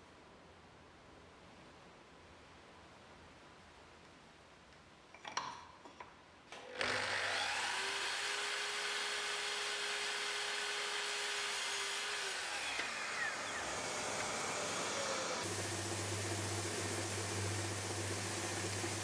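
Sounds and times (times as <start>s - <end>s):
mitre saw cutting wood: 6.6s - 19.0s.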